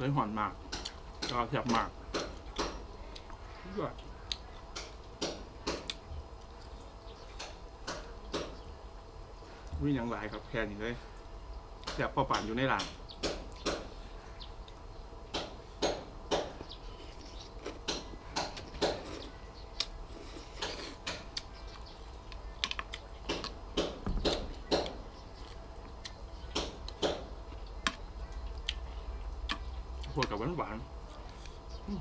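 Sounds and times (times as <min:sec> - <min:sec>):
chewing clicks and smacks: 0:00.7 - 0:05.0, 0:05.6 - 0:06.8, 0:19.8 - 0:23.6, 0:24.2 - 0:28.8, 0:29.4 - 0:30.4.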